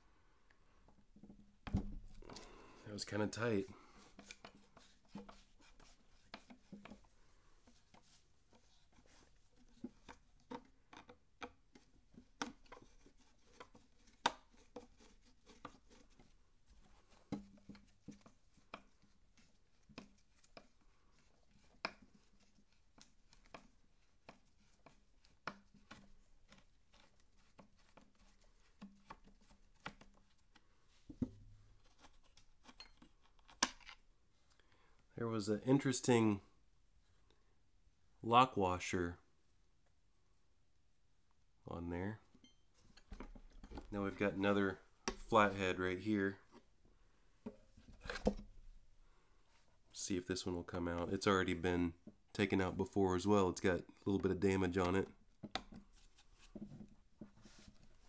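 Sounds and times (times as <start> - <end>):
screwdriver clicking and scraping metal: 31.8 - 34.0.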